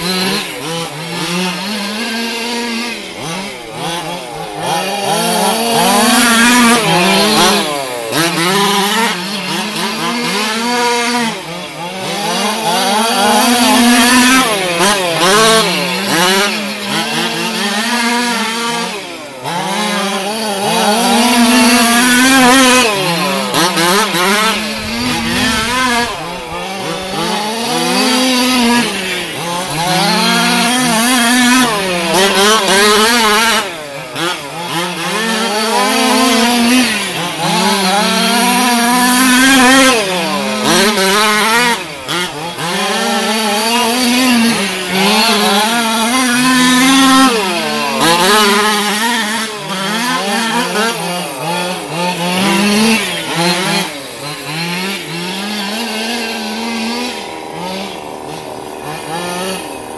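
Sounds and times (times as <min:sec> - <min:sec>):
small two-stroke engines revving: 0:00.0 - 0:59.9.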